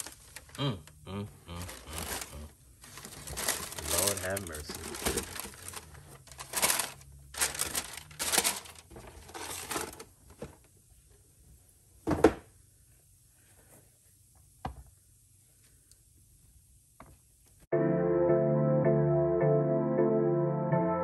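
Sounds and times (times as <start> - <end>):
tissue paper rustling: 0.0 - 0.6, 1.7 - 10.1.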